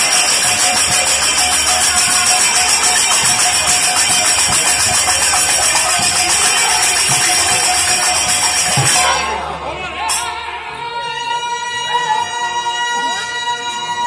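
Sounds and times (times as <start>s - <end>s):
drum strokes: 0.0s - 10.3s
hand cymbals clashing: 0.0s - 10.4s.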